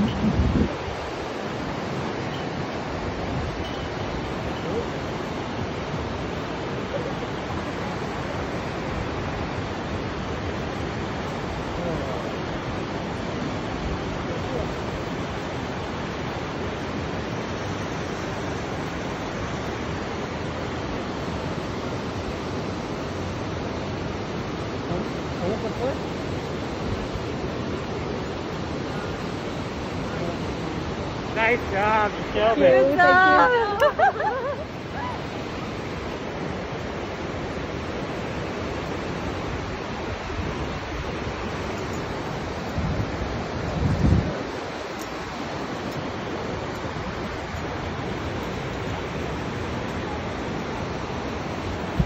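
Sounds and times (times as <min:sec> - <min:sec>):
river rushing: 0:00.0 - 0:52.0
wind on microphone: 0:00.0 - 0:52.0.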